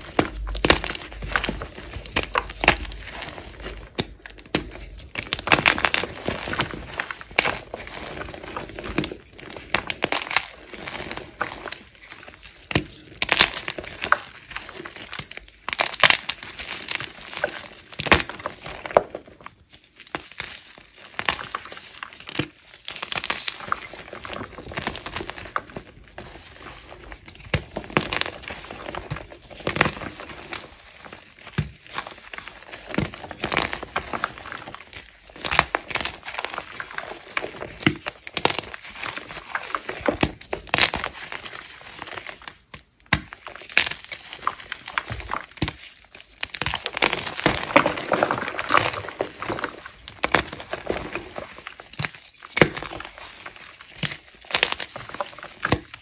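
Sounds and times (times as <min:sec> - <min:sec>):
powdery rustling: 0:43.3 - 0:56.0.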